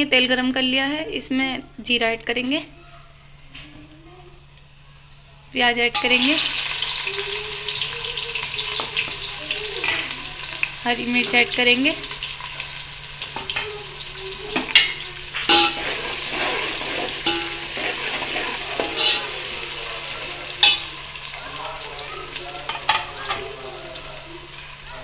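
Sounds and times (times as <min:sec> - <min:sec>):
onions sizzling in hot oil: 0:05.4 - 0:25.0
ladle scraping and knocking pot: 0:14.6 - 0:19.6.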